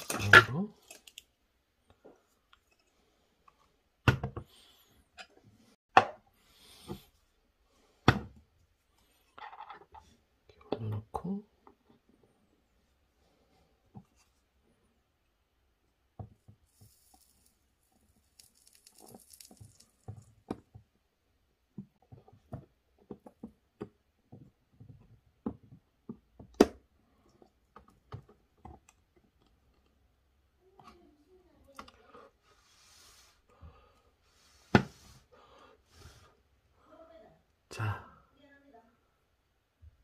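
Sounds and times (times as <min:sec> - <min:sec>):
faint soldering hiss: 0:16.4 - 0:20.3.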